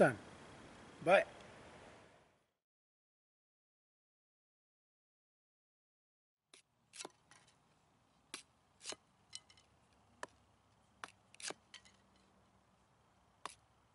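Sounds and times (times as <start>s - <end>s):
blade chopping wooden sticks: 6.5s - 7.6s, 8.3s - 10.4s, 11.0s - 12.4s, 13.4s - 13.7s.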